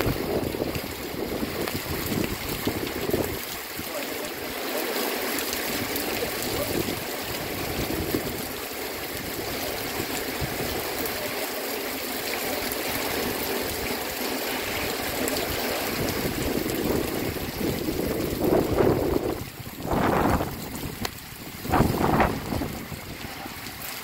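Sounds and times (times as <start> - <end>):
gusty rush of wind: 0.0 - 3.4, 6.4 - 8.5, 15.8 - 23.7
heavy rain falling: 0.0 - 24.0.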